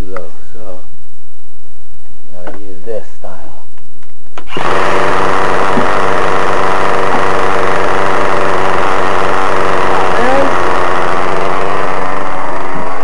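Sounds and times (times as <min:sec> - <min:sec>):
small glow engine idling: 0:04.5 - 0:13.0.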